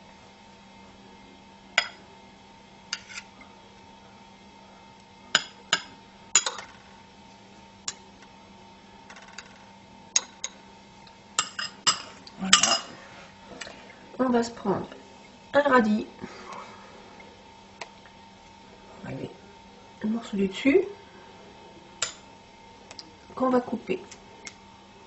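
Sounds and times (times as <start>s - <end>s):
faint steady hum: 0.0s - 25.0s
glass and knife clinking on tray: 11.4s - 12.9s.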